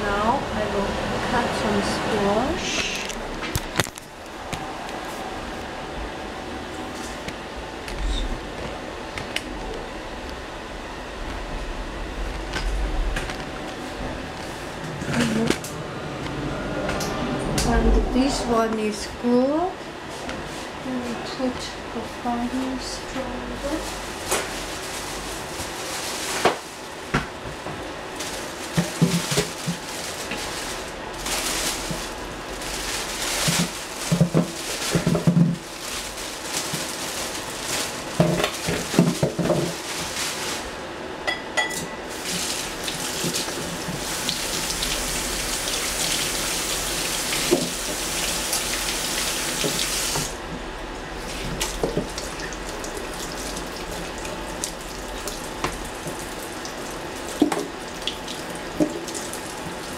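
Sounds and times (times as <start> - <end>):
kitchen tap running: 42.1 - 50.4.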